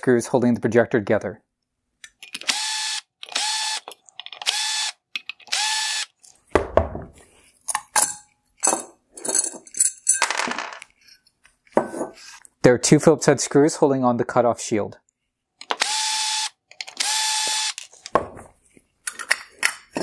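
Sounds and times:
cordless drill spinning out screws: 2.4 - 6.2, 15.8 - 17.9
metal parts clinking: 7.7 - 11.2.

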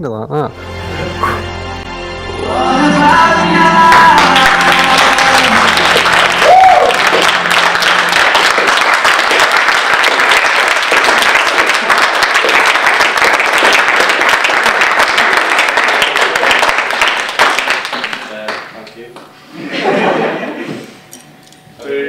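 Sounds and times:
music: 0.3 - 10.5
audience applauding: 2.9 - 19.0.

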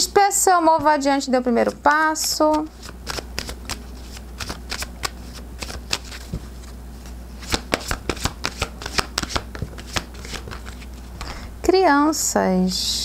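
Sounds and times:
cards snapping while shuffled: 2.4 - 6.7, 7.4 - 11.3.

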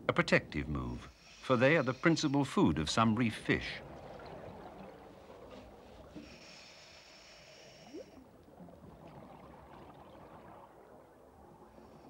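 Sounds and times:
underwater ambience: 0.0 - 12.0
scuba regulator breath hiss: 1.1 - 2.6, 6.2 - 8.2.

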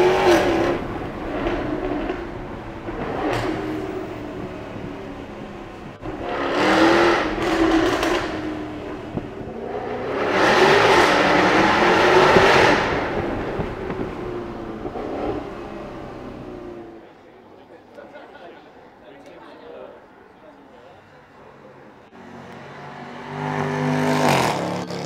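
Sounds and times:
car engine accelerating hard: 0.0 - 17.0, 22.6 - 25.0.

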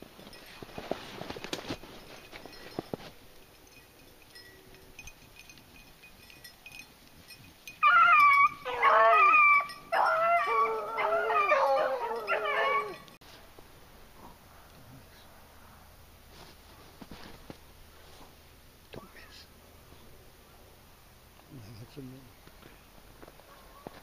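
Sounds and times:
dogs baying: 7.8 - 13.2, 23.4 - 24.0.

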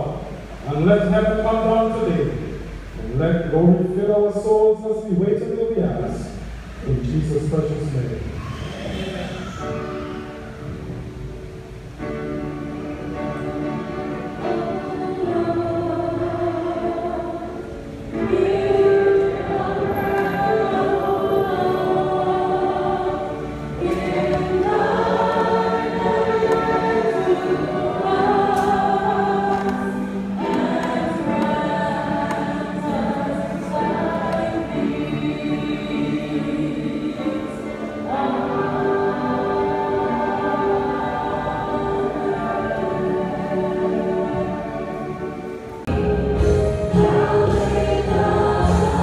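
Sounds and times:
choir singing a hymn: 0.0 - 49.0.

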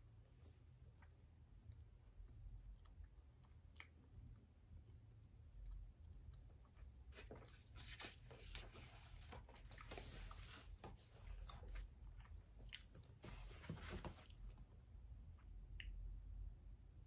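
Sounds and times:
paper and fabric rustling: 7.1 - 11.9, 13.1 - 14.5.

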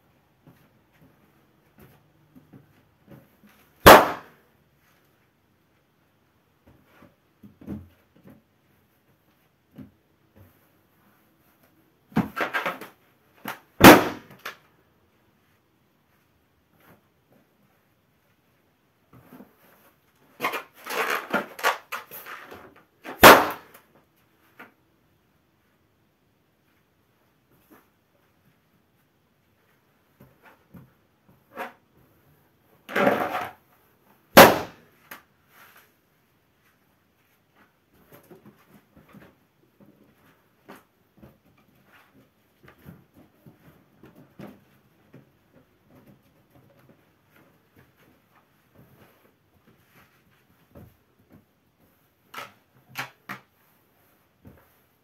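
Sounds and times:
balloon bursting with loud pop: 3.8 - 4.3, 13.8 - 14.4, 23.1 - 23.7, 34.3 - 34.8.

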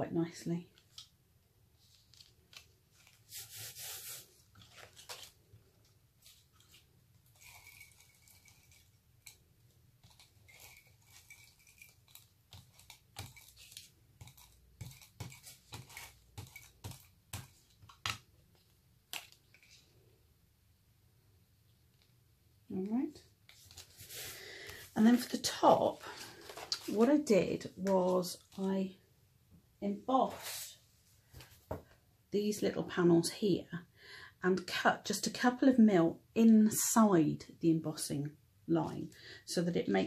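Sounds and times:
paper rustle: 1.8 - 9.3.

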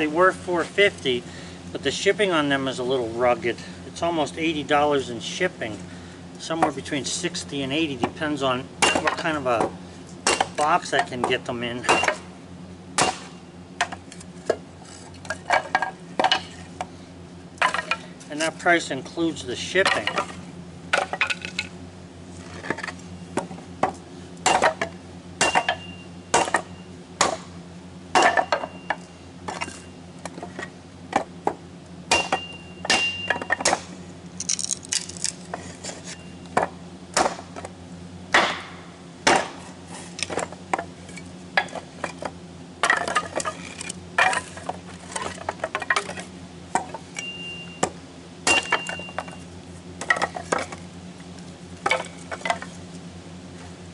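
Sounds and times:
kindling being chopped: 13.0 - 14.0, 25.4 - 27.5, 36.6 - 37.6, 38.3 - 39.6.

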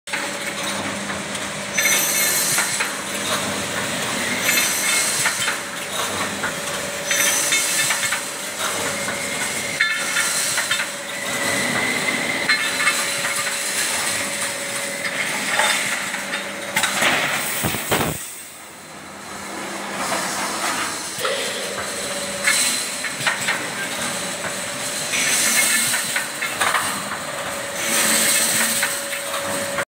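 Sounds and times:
machine hissing and clattering: 0.1 - 29.8
machine humming: 21.2 - 25.2.

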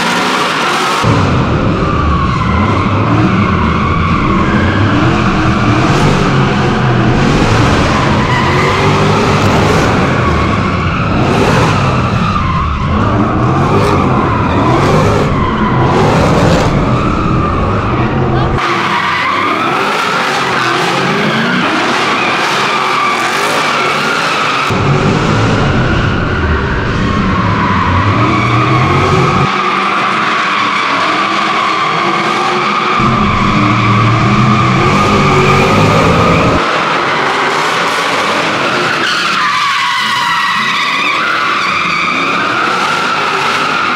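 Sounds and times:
car engine revving high: 0.0 - 30.1, 32.2 - 36.9
car engine running: 33.0 - 36.6.

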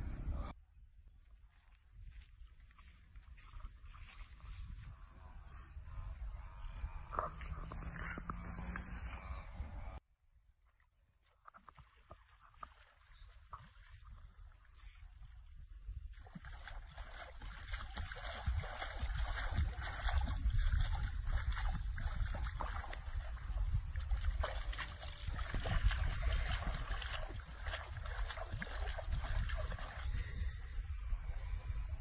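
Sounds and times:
steady low rumble: 0.0 - 0.6, 15.6 - 32.0
water splashing and sloshing: 1.3 - 5.0, 10.7 - 31.4.

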